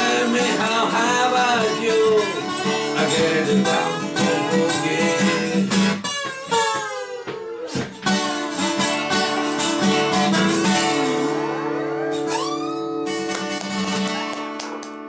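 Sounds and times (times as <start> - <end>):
acoustic guitar lead lines: 0.0 - 15.0
acoustic guitar strumming chords: 0.0 - 15.0.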